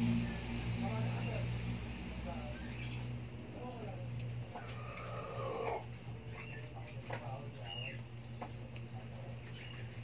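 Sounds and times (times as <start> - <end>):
low hum: 0.0 - 6.2.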